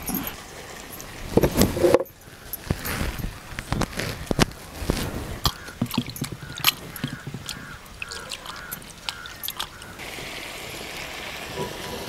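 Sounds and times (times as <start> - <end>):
bird calling: 4.8 - 10.0
boiling pot hissing: 9.9 - 12.0.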